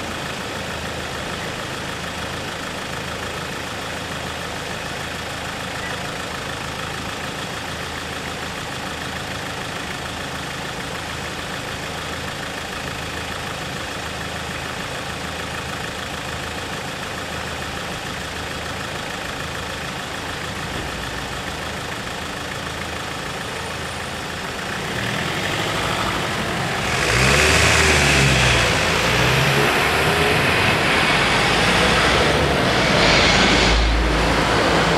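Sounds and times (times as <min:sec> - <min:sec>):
engines idling: 0:00.0 - 0:34.9
engines revving: 0:24.1 - 0:34.9
cars driving past: 0:24.6 - 0:34.9.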